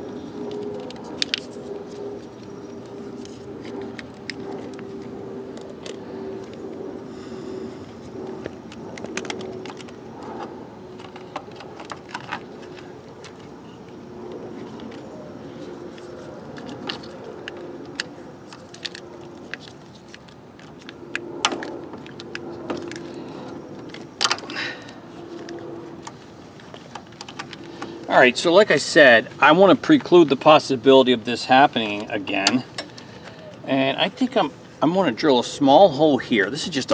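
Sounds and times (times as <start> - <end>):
crackles and clicks of wires: 0.1 - 6.9, 7.8 - 28.1.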